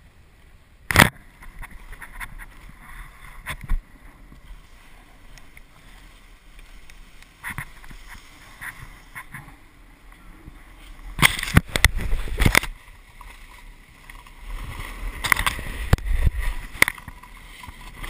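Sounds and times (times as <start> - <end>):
camera being bumped: 0.9 - 2.5, 11.2 - 12.8
snowboard scraping over snow: 13.6 - 18.0.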